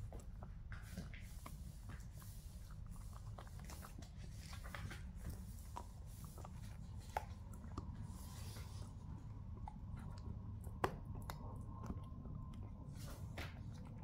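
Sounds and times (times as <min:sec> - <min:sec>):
dog teeth gnawing chew: 0:00.0 - 0:14.0.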